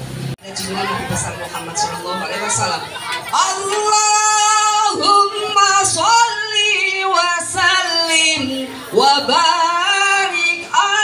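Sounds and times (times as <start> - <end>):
young female voices singing: 3.3 - 11.0.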